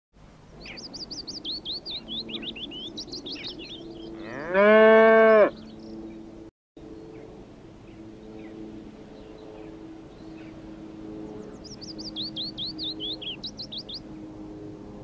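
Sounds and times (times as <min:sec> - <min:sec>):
high chirping birdsong: 0:00.5 - 0:06.3, 0:11.3 - 0:14.1
cow mooing: 0:04.2 - 0:05.6.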